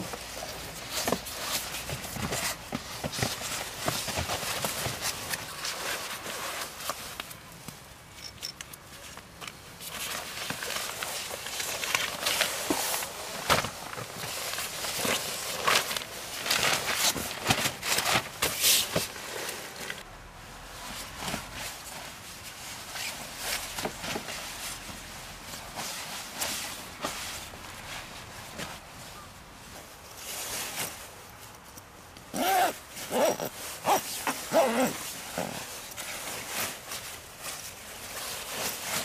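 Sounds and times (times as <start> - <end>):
fabric and foil crinkling: 0.0 - 8.0, 8.8 - 39.0.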